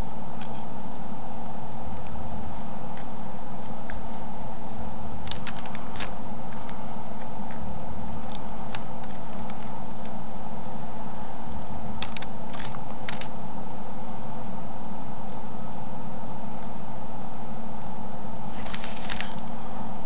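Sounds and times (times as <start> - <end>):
steady background hum: 0.0 - 20.0
paper peeling crinkles: 0.4 - 13.4, 17.6 - 20.0.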